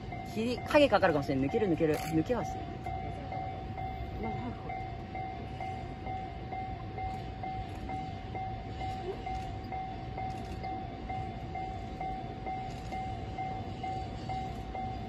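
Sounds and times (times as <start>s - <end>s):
level crossing alarm dinging: 0.0s - 15.0s
low steady rumble: 0.0s - 15.0s.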